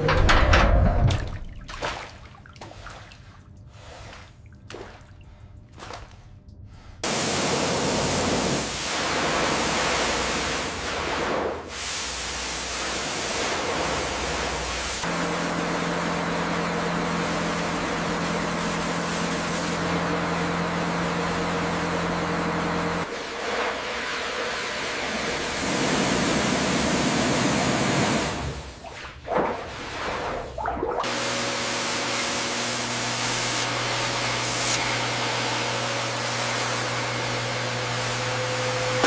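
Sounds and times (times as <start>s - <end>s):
pressure washer water jet hissing: 7.0s - 28.8s, 31.1s - 39.0s.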